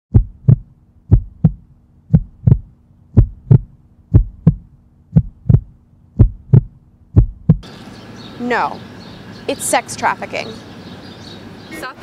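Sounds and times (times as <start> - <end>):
heartbeat double thump: 0.1 - 7.7.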